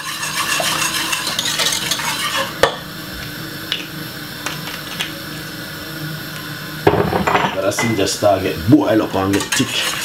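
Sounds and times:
whisk scraping metal pot: 0.0 - 2.6, 9.0 - 10.0.

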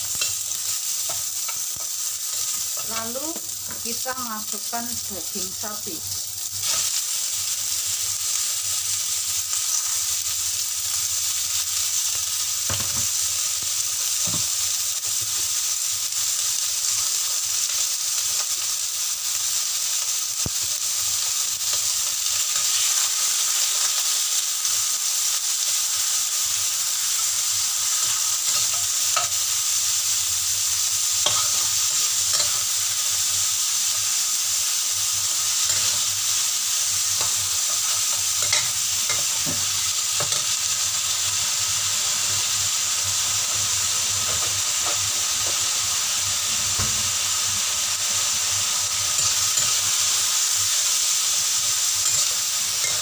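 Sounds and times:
food sizzling in hot oil: 0.0 - 53.0
metal spatula clinking and scraping: 31.2 - 32.7, 37.2 - 39.4, 52.0 - 53.0.

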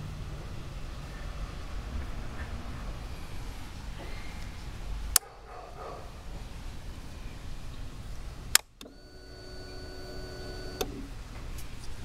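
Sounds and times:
switch clicks: 8.5 - 9.8
fuel pump whine: 8.8 - 11.2.

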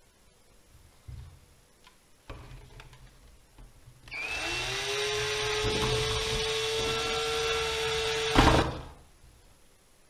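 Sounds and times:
cordless drill whining: 4.1 - 8.7.

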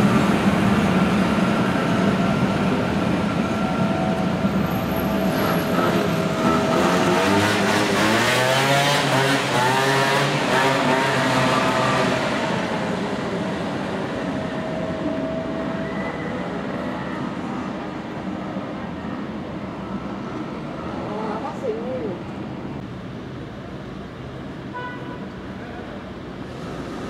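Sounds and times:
tram electric whine: 0.0 - 8.5, 10.3 - 21.5.

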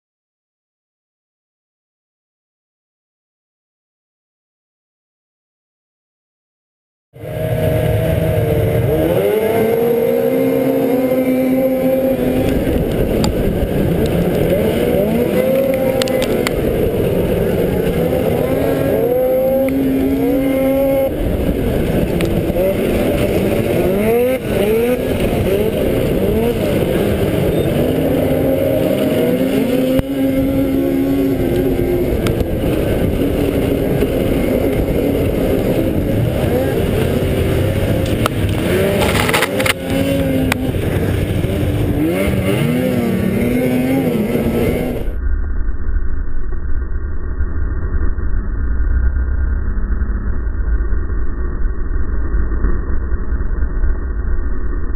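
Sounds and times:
snowmobile engine revving: 7.2 - 45.2
wind noise: 7.2 - 54.9.

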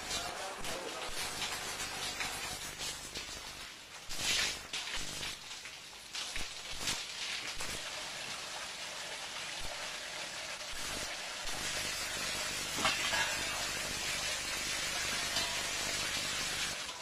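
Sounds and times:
sharp crackles: 0.0 - 7.9
steady hissing noise: 0.0 - 8.6, 9.4 - 17.0.

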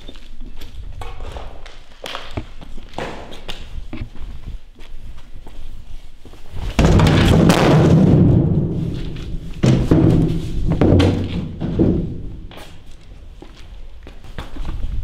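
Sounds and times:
low rumbling booms: 6.8 - 12.5.

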